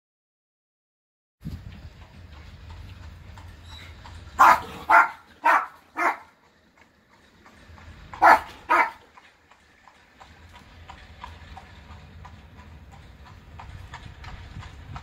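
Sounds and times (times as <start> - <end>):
horse hooves clip-clopping on road: 1.4 - 15.0
dog barking: 4.4 - 6.3, 8.2 - 9.1
low rumble: 6.6 - 15.0.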